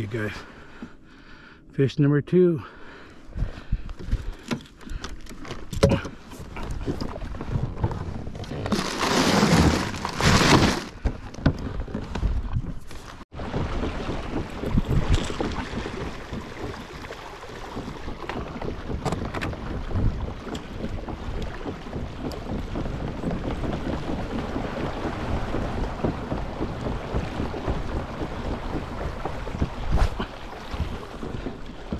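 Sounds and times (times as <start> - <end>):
water washing along a hull: 2.8 - 31.9
wind buffeting microphone: 13.4 - 31.9.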